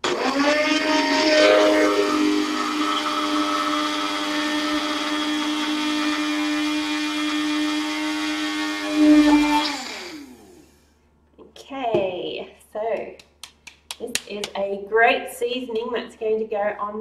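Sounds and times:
electric blender grinding: 0.0 - 10.8.

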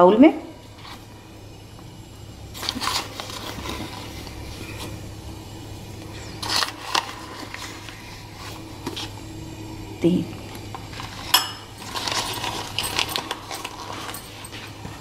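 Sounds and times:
low steady hum: 0.0 - 15.0
packet rustling: 2.5 - 5.0, 6.1 - 9.1, 10.8 - 15.0.

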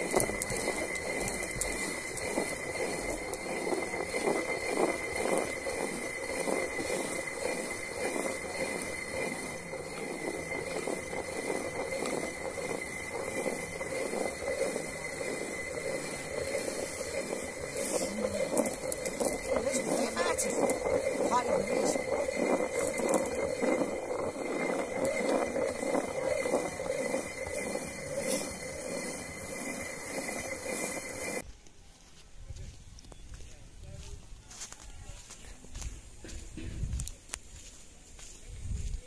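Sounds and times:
stone quern grinding grain: 0.0 - 31.4.

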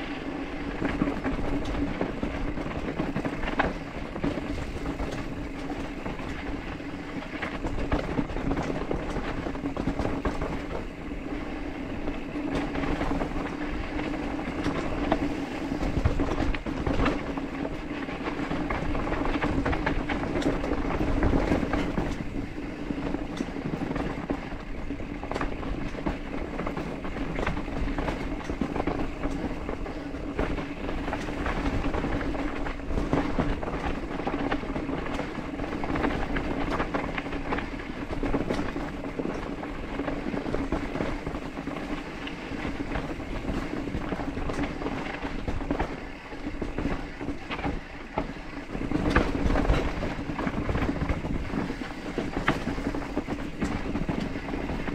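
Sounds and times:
bike rattling over bumps: 0.0 - 54.9.

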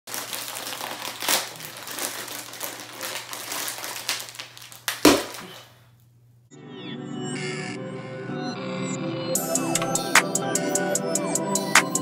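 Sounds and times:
foil packet crinkling: 0.1 - 5.8.

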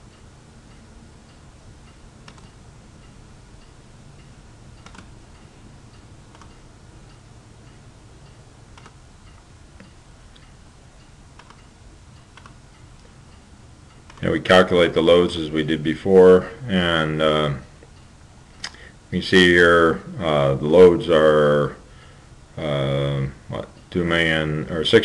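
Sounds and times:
faint steady ticking: 0.0 - 25.0
low hum and hiss: 0.0 - 25.0
soft clicks: 0.1 - 14.3.

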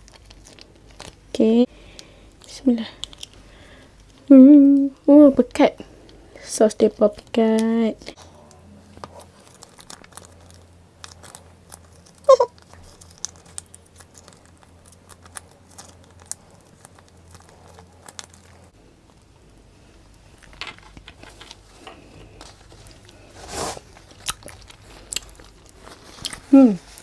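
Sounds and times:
plastic sachet crinkling: 0.0 - 4.3, 8.9 - 19.2, 20.1 - 27.0
faint low hum: 0.0 - 27.0.

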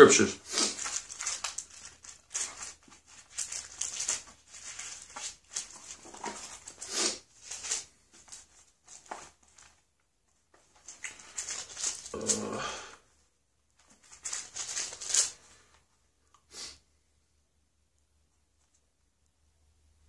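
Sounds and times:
pages rustling and flicking: 0.5 - 9.8, 10.5 - 12.5, 13.8 - 15.7
dull handling sound: 0.8 - 12.4.

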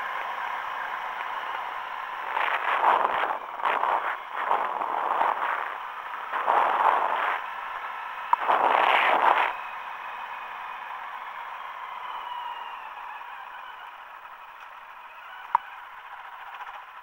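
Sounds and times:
wind rushing on microphone: 2.2 - 7.5, 8.3 - 9.6.

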